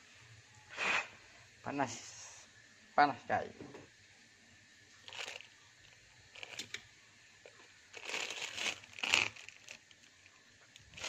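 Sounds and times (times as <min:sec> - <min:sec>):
plastic bag crinkling: 0:05.0 - 0:05.5, 0:06.3 - 0:06.7, 0:07.9 - 0:11.0.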